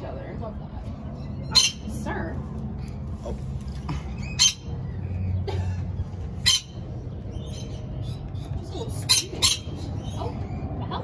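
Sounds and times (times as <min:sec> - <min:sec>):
low steady rumble: 0:00.0 - 0:11.0
lorikeets screeching: 0:01.1 - 0:02.0, 0:04.0 - 0:05.4, 0:06.0 - 0:10.8.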